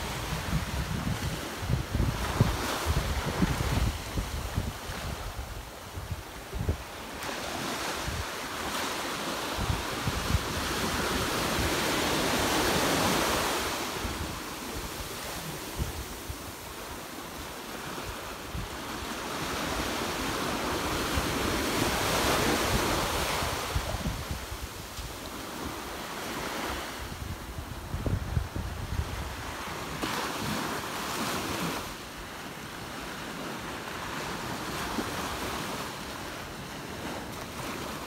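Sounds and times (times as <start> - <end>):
wind buffeting microphone: 0.0 - 8.8, 9.5 - 16.9, 18.2 - 25.8, 26.4 - 31.8
waves breaking on beach: 0.0 - 38.0.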